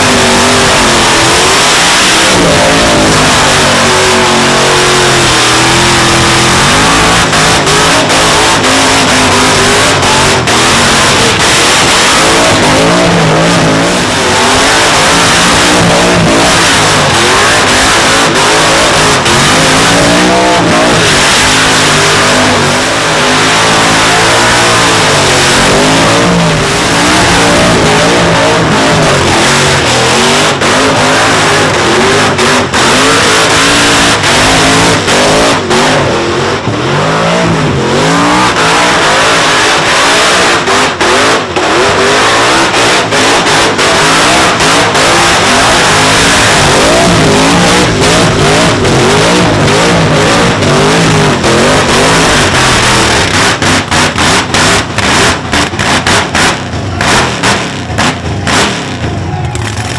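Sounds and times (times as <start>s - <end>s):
engine revving hard: 0.0s - 59.9s.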